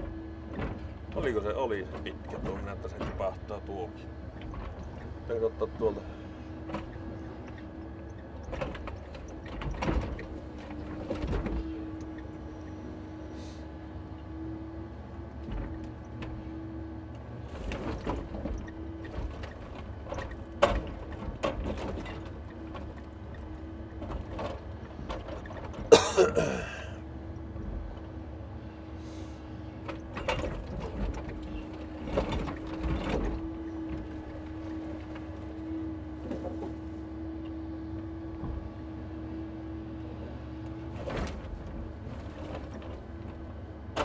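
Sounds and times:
truck engine and hydraulics hum: 0:00.0 - 0:44.0
logs knocking and clunking: 0:17.3 - 0:26.8, 0:29.8 - 0:37.4.

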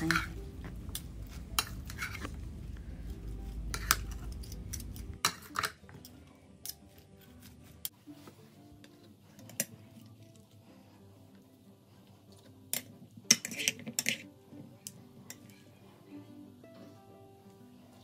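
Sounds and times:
utensils clinking against bowl: 0:00.0 - 0:00.5, 0:03.7 - 0:06.8, 0:12.7 - 0:14.3.

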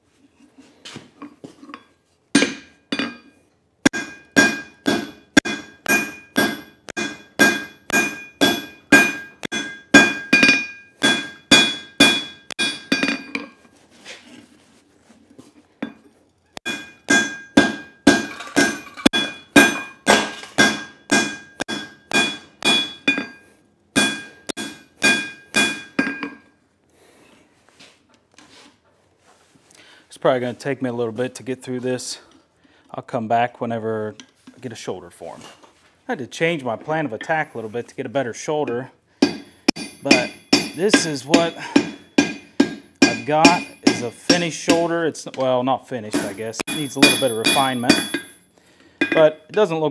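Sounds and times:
hammer striking metal on anvil: 0:02.4 - 0:03.2, 0:03.8 - 0:13.5, 0:16.6 - 0:26.4, 0:39.2 - 0:45.0, 0:46.1 - 0:48.4, 0:49.0 - 0:49.6.

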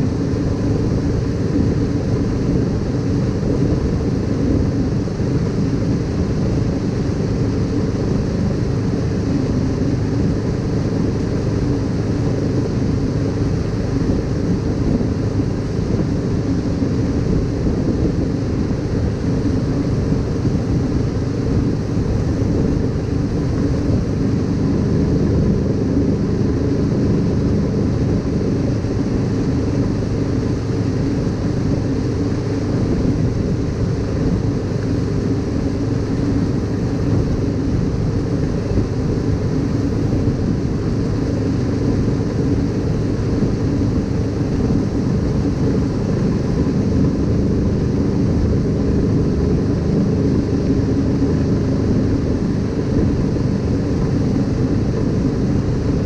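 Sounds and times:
boat engine running: 0:00.0 - 0:56.0.

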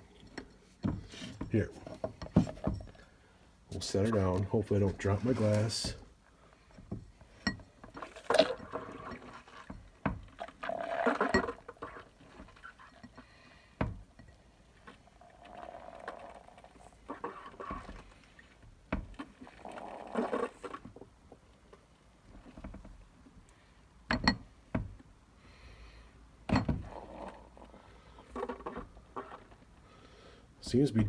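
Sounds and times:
beer spurting into a glass: 0:08.0 - 0:09.7, 0:10.3 - 0:13.0, 0:14.8 - 0:18.1, 0:19.2 - 0:21.0, 0:26.8 - 0:29.6.

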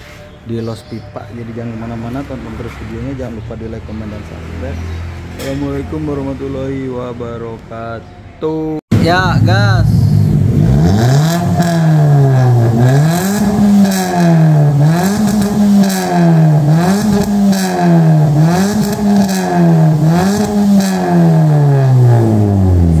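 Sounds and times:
car engine revving: 0:08.9 - 0:23.0.

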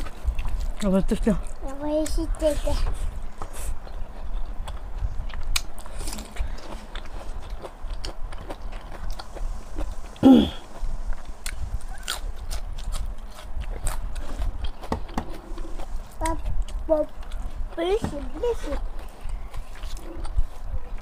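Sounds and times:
woman chewing with lip smacks: 0:03.4 - 0:10.2.

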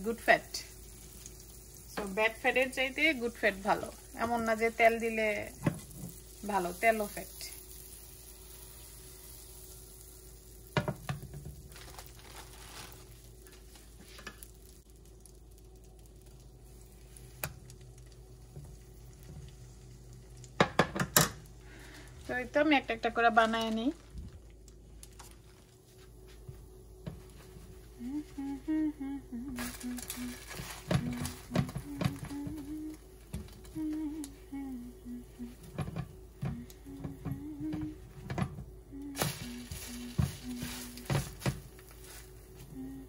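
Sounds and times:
butter sizzling in a frying pan: 0:00.0 - 0:23.8, 0:39.1 - 0:42.6
woman humming: 0:27.9 - 0:41.5, 0:42.6 - 0:43.0.

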